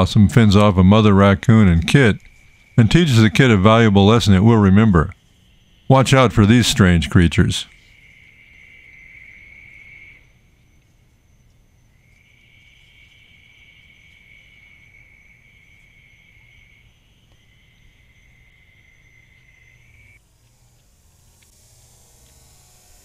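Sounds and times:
faint high buzz: 0.0 - 23.0
insect trilling: 0.0 - 23.0.

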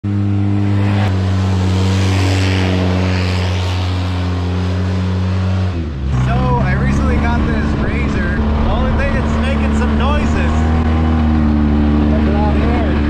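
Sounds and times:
off-road vehicle engine running: 0.0 - 13.0.

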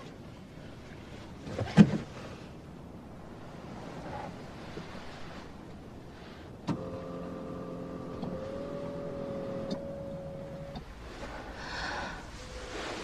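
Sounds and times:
electric motor whine: 6.8 - 10.9.

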